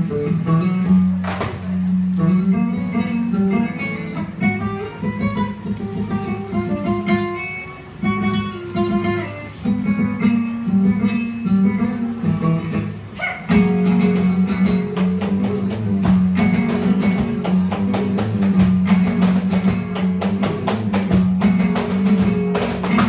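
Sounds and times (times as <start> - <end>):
acoustic guitar strumming: 0.0 - 23.0
box drum beating: 14.0 - 23.0.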